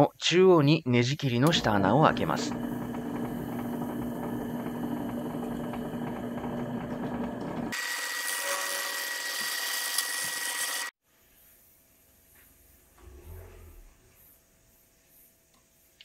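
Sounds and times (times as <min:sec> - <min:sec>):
drill press motor hum: 0:01.4 - 0:10.9
thin hiss with high whine: 0:11.0 - 0:16.0.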